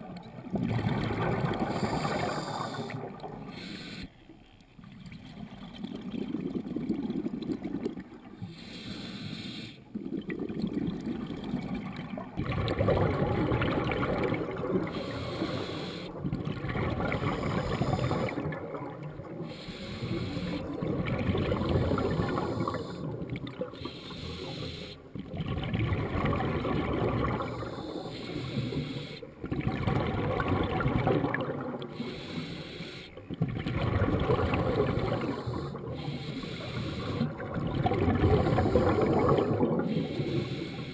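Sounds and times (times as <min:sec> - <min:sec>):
exhaled bubbles gurgling: 0:00.0 - 0:03.8, 0:04.8 - 0:40.9
regulator inhalations: 0:01.6 - 0:04.2, 0:08.4 - 0:09.9, 0:14.8 - 0:16.3, 0:17.1 - 0:18.5, 0:19.4 - 0:20.8, 0:21.6 - 0:25.1, 0:27.5 - 0:29.4, 0:31.9 - 0:33.2, 0:35.0 - 0:37.4, 0:38.4 - 0:40.9.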